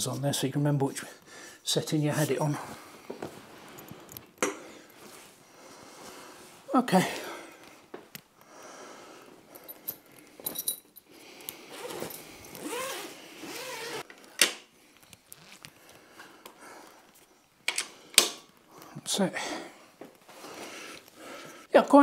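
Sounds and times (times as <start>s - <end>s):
metallic clinks and knocks: 9.6s - 11.1s
nylon bag rustling: 11.6s - 14.1s.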